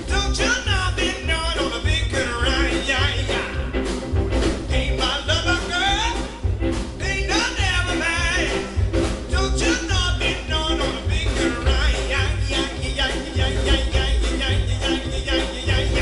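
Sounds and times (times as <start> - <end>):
man singing: 0.0 - 3.9, 4.6 - 6.4, 7.0 - 16.0
drums: 0.0 - 16.0
plucked upright bass: 0.0 - 16.0.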